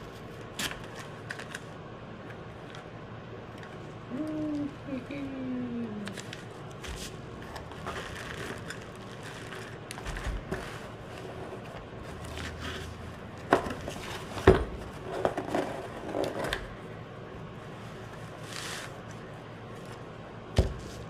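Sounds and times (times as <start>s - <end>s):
packaging scraping and rustling: 6.2s - 16.6s.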